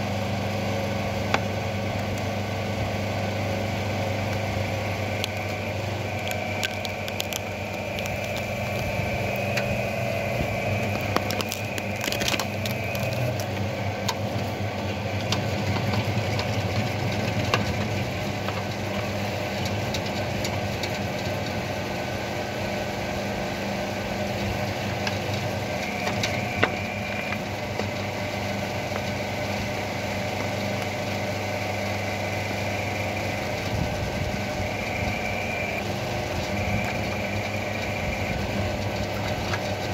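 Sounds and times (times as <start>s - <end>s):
hydraulics humming and whining: 0.0s - 39.9s
tree roots cracking and snapping: 5.1s - 14.2s.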